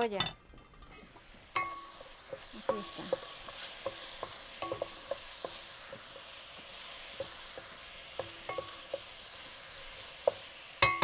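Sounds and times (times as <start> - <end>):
onion sizzling in oil: 0.0 - 11.0
spatula knocking on pan: 1.6 - 9.2, 10.2 - 11.0.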